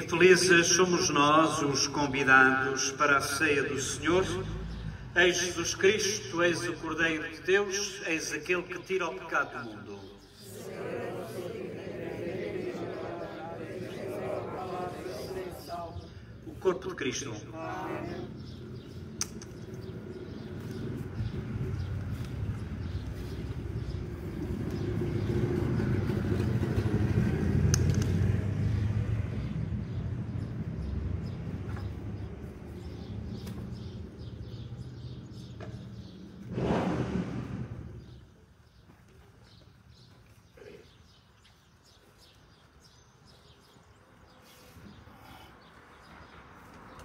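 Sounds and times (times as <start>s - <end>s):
vehicle engine passing by: 3.9s - 5.2s, 17.7s - 38.2s
small birds chirping: 8.4s - 11.6s, 12.7s - 27.3s, 28.0s - 36.5s, 37.9s - 47.0s.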